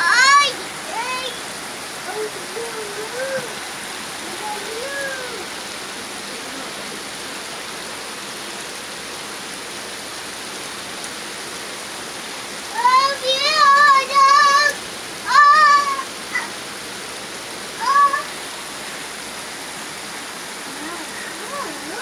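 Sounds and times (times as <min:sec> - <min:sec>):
high wavering voice calling: 0:00.0 - 0:01.4, 0:02.0 - 0:05.6, 0:12.8 - 0:16.6, 0:17.8 - 0:18.4
heavy rain pouring: 0:00.0 - 0:22.0.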